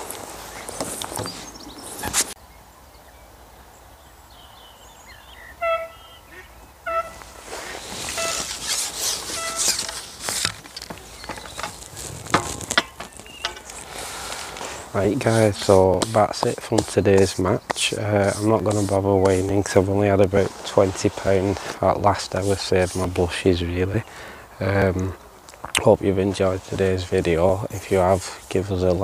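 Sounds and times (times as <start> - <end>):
fishing tackle rustling and clattering: 0.0 - 2.4, 7.2 - 23.2
bird honking calls: 5.1 - 11.9.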